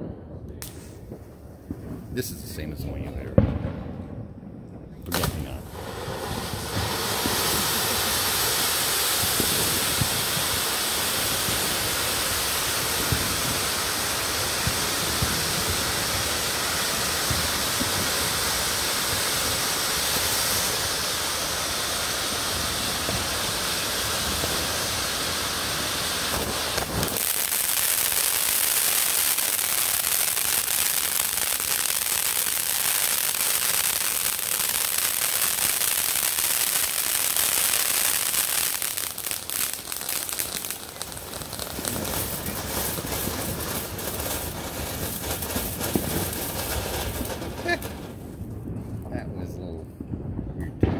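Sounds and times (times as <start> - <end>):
small firework crackles: 0.0 - 50.9
firework fountains hissing: 5.0 - 48.3.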